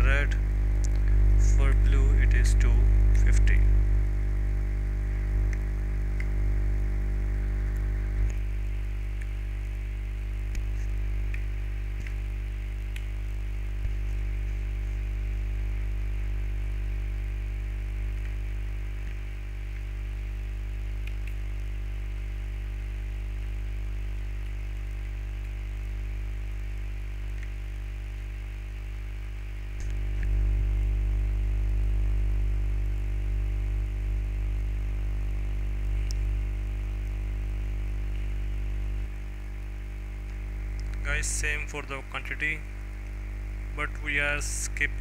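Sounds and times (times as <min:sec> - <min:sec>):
low hum and buzz: 0:00.0 - 0:45.0
faint clicks: 0:10.4 - 0:13.2, 0:21.0 - 0:21.7, 0:27.3 - 0:27.6, 0:35.9 - 0:36.3.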